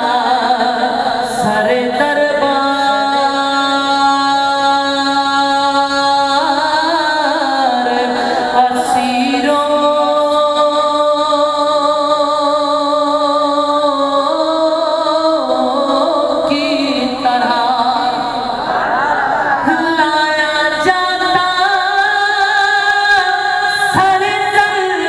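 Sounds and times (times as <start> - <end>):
man singing through a microphone: 0.0 - 18.6, 19.6 - 25.0.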